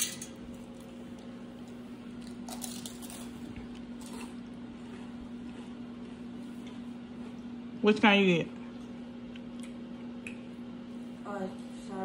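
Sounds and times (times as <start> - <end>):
steady low hum: 0.0 - 12.0
child crunching chips: 2.2 - 6.2.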